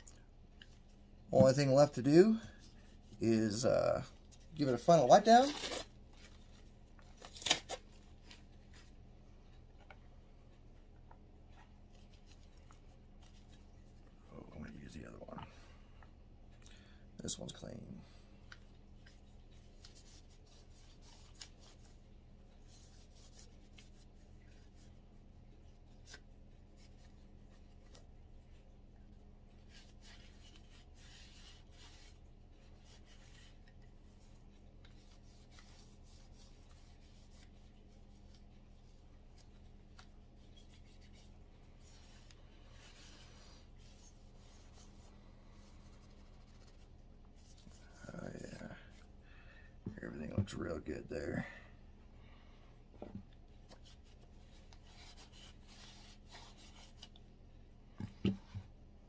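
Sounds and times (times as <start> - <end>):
cloth rubbing on metal: 53.7 - 57.2.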